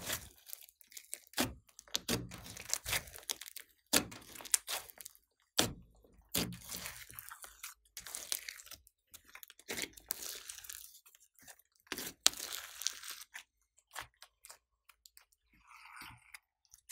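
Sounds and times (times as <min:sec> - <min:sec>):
slime squelching and clicking: 0:00.0 - 0:16.9.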